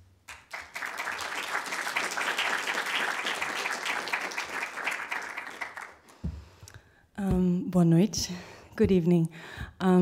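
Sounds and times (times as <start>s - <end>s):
audience applauding: 0.3s - 6.1s.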